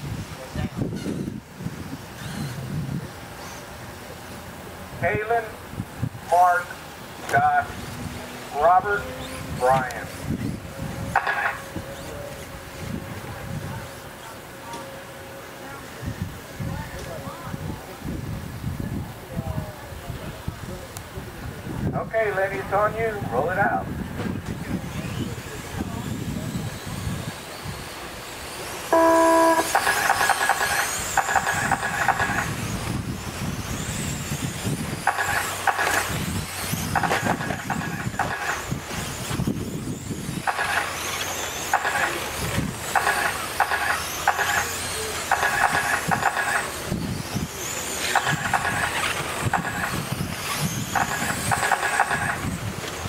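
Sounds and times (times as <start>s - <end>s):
rc car motors whining: 0.8s - 4.4s, 6.6s - 14.8s, 24.3s - 53.0s
electronic start tone: 28.9s - 30.6s
electronic beeping: 28.9s - 30.7s.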